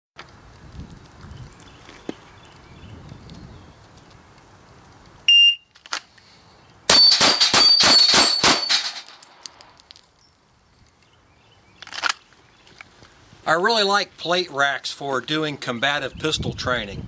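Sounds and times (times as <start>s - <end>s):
short electronic beep: 5.3s - 5.6s
steel plates ringing: 6.9s - 9.2s
pistol shots: 6.9s - 9.4s.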